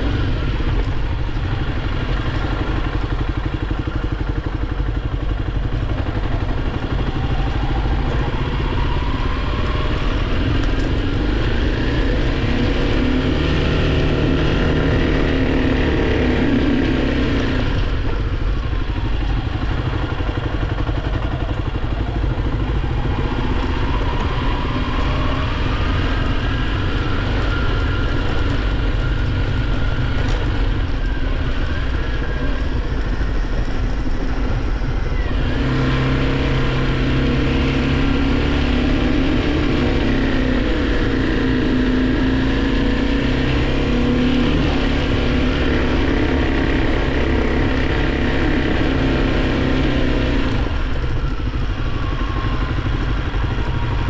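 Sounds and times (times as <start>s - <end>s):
dirt bike engine revving: 7.0s - 17.9s, 35.1s - 50.7s.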